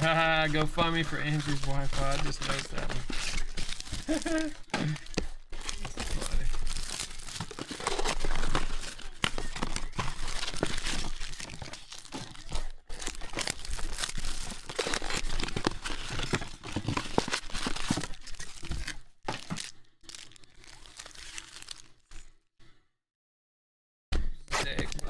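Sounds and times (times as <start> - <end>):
plastic wrapping crinkling and tearing: 0.0 - 22.3, 24.5 - 25.0.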